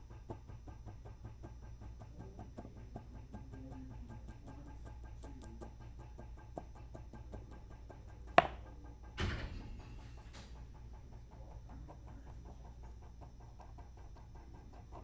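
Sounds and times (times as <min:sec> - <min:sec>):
motor hum with ticks: 0:00.0 - 0:15.0
stone on stone clack: 0:08.4 - 0:08.6.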